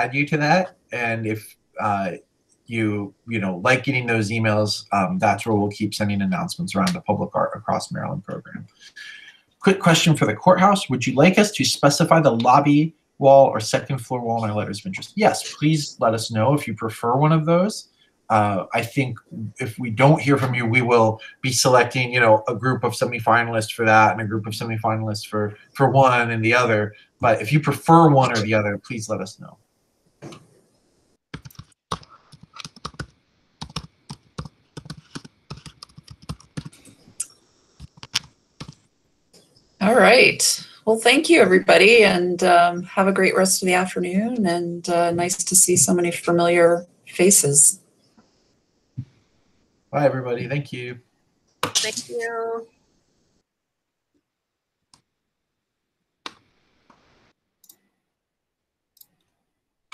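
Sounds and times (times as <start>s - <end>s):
typing on keyboard: 31.4s - 36.8s.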